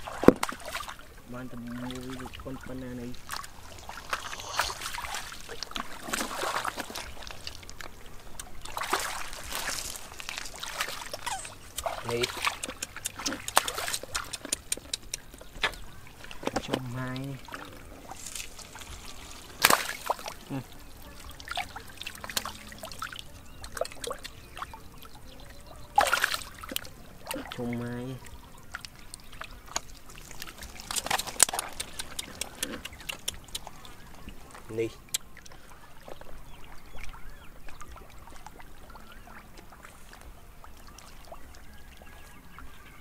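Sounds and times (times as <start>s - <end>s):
muddy water splashing: 0.0s - 43.0s
loud splash: 3.3s - 7.3s, 8.6s - 12.6s, 18.4s - 20.6s.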